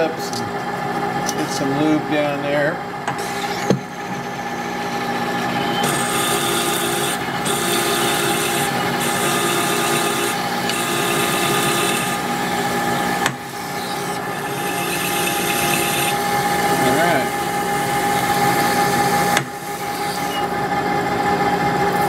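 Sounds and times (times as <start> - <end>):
lathe running: 0.0 - 22.0
drill cutting hiss: 3.2 - 20.6.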